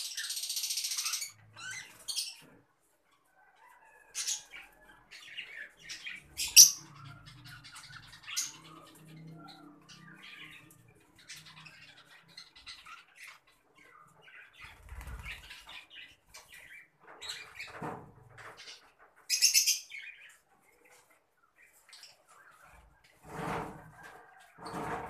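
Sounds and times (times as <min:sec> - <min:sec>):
lovebirds chirping: 0:04.2 - 0:17.8
wings fluttering: 0:14.6 - 0:15.8.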